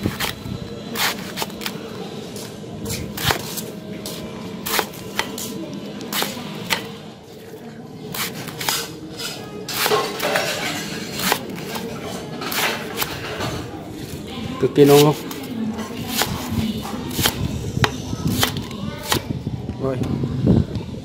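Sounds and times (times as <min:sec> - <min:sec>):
knife slicing on wooden board: 0:00.0 - 0:00.4, 0:01.0 - 0:01.8, 0:02.9 - 0:06.9, 0:08.1 - 0:13.4, 0:14.8 - 0:19.2.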